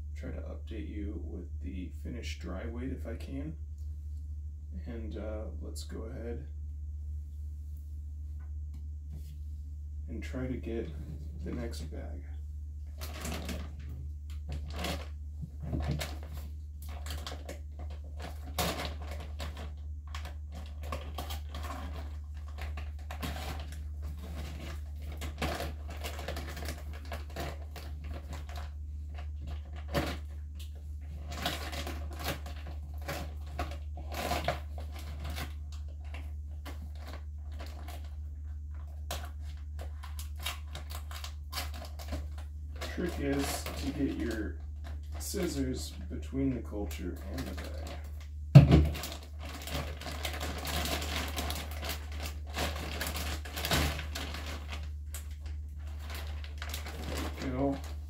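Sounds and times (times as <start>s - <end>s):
steady low hum: 0.0s - 58.0s
plastic bag crinkling: 12.9s - 58.0s.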